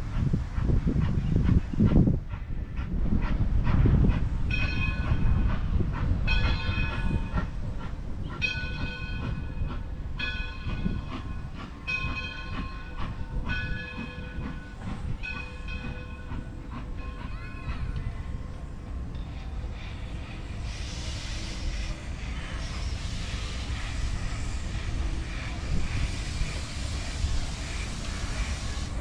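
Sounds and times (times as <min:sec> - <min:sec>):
low rumble of moving train: 0:00.0 - 0:29.0
steam locomotive bell ringing: 0:04.5 - 0:05.5, 0:08.4 - 0:18.5.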